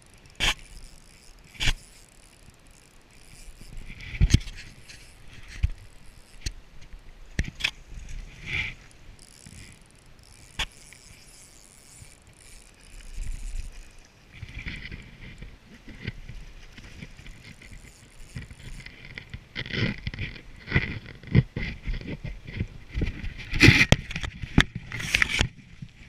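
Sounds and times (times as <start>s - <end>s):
short rattling bursts: 0.0s - 6.6s, 7.4s - 20.1s
fishing tackle clicks and knocks: 0.1s - 26.0s.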